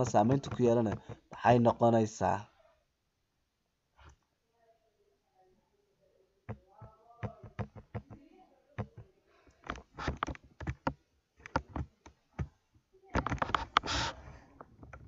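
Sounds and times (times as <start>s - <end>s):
keyboard and mouse clicking: 0.2s - 1.2s, 7.2s - 8.2s, 9.6s - 11.9s, 13.2s - 14.2s.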